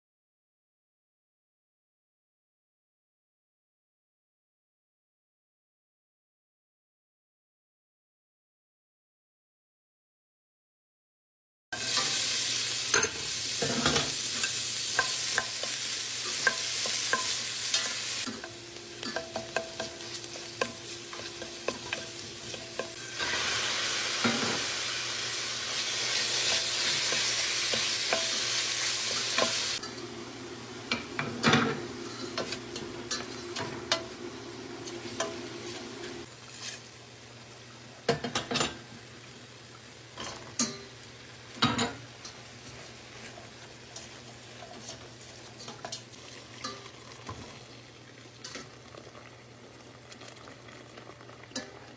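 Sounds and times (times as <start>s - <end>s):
food sizzling in oil: 11.8s - 51.9s.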